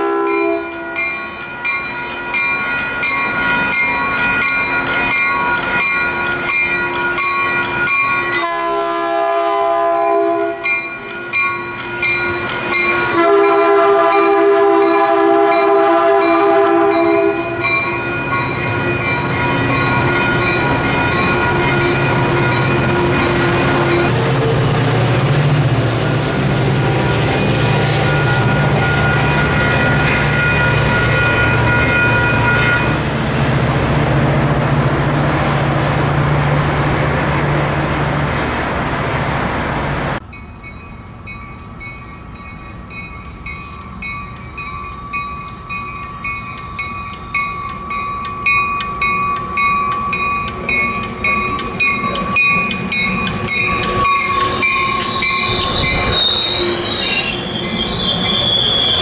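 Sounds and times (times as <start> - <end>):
diesel locomotive engine drone: 0.0 - 59.0
high wheel squeal: 18.7 - 31.6, 51.3 - 59.0.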